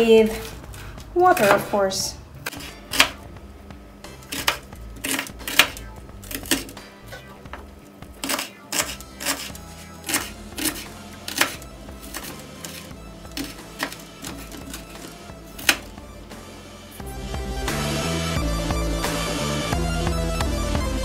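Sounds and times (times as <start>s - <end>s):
faint background music: 0.0s - 21.0s
knife chopping on wooden board: 2.4s - 3.2s, 4.3s - 6.8s, 8.2s - 15.9s.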